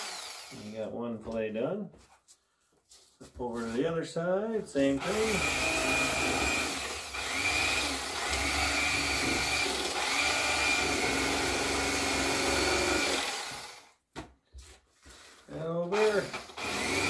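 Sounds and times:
electric knife running: 0.0 - 0.7, 5.0 - 13.9, 16.0 - 17.0.

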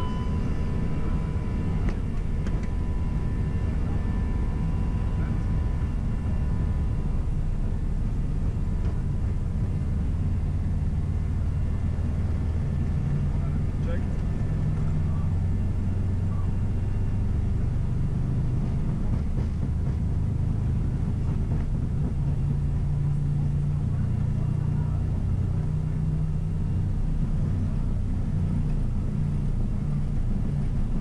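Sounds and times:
jet engines rumbling: 0.0 - 31.0.

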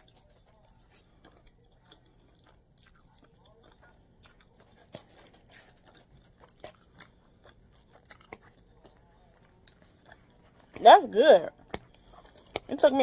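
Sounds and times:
wet mouth chewing clicks: 11.6 - 12.7.

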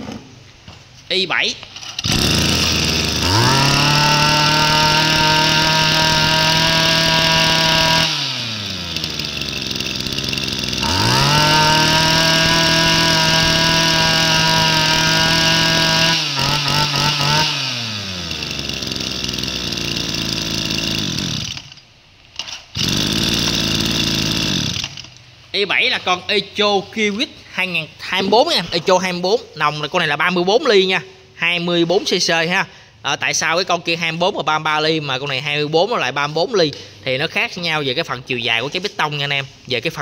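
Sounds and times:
brush cutter engine revving: 1.8 - 21.8, 22.4 - 25.2.

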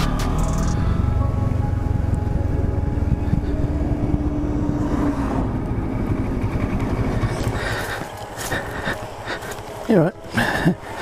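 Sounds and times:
motorcycle engine rumble: 0.0 - 9.9
truck passing: 0.0 - 9.9
wind noise: 2.5 - 9.2.

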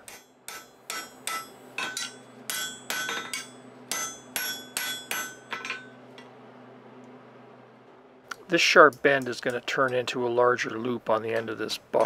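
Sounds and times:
hammer striking metal on anvil: 0.0 - 6.3.

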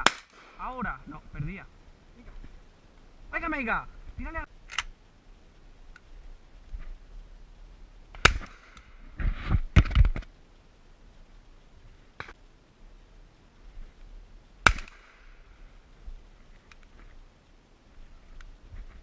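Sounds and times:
shotgun shots: 0.0 - 0.7, 8.2 - 8.8, 14.6 - 15.2.

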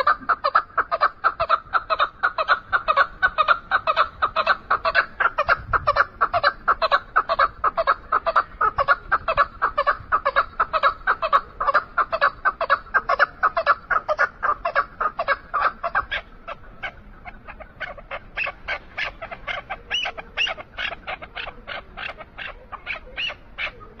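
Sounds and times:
partridge calling chuk notes: 0.0 - 24.0.

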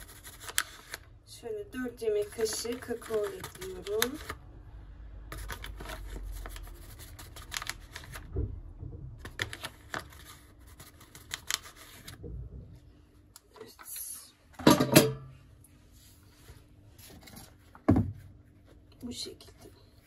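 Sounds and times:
packet rustling: 2.2 - 4.4, 5.4 - 8.3
packet crinkling: 5.4 - 8.2.

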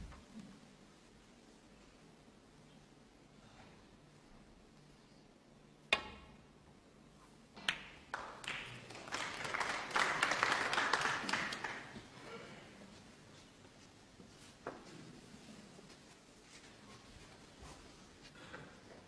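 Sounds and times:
audience applauding: 8.1 - 12.3.

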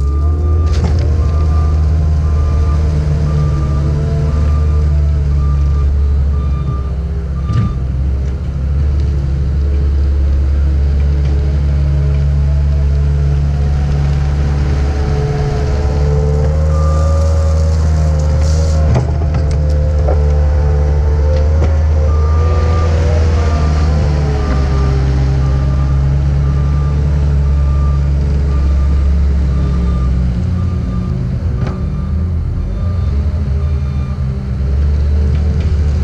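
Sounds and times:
diesel engine running: 0.0 - 36.0.

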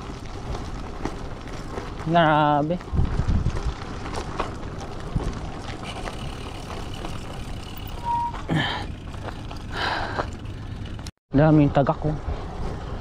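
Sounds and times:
wind noise on microphone: 0.0 - 8.4
bike tyres rolling over gravel: 0.0 - 11.1
short beep: 7.9 - 8.5.

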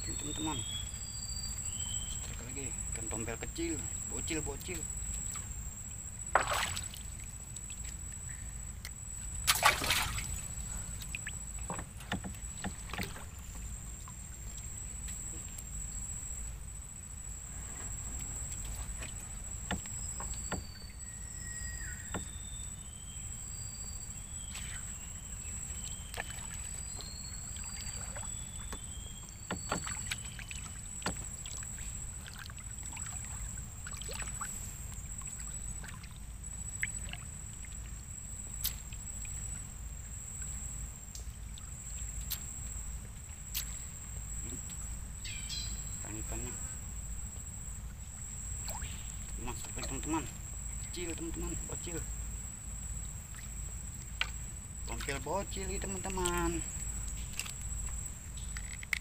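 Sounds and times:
high insect drone: 0.0 - 59.0
paddle dipping and sloshing water: 1.7 - 16.5, 17.1 - 45.1, 45.9 - 59.0
paddle splash: 6.3 - 8.2, 8.9 - 15.5, 24.4 - 38.0.

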